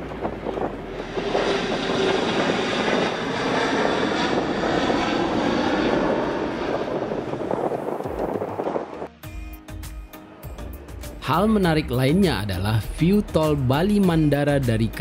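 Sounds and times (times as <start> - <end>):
jet engines roaring: 0.0 - 9.1.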